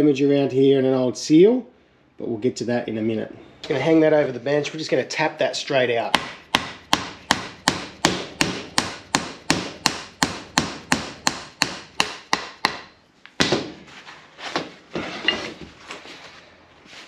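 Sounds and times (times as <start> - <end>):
mallet hammering metal shaft: 6.1 - 12.9.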